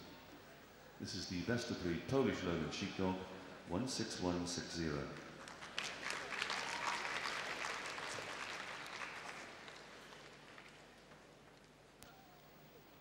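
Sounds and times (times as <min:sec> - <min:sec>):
audience applauding: 0:05.4 - 0:11.4.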